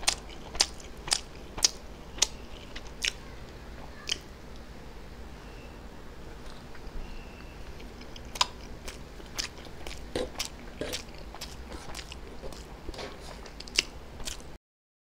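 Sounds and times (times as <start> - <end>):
person chewing food: 0.0 - 3.2, 6.4 - 14.6.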